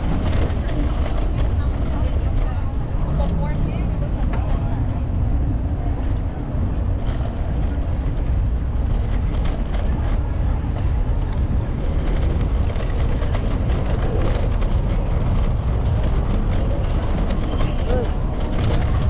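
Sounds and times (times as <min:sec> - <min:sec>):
bicycle road noise: 0:00.0 - 0:19.0
wind buffeting microphone: 0:00.0 - 0:19.0.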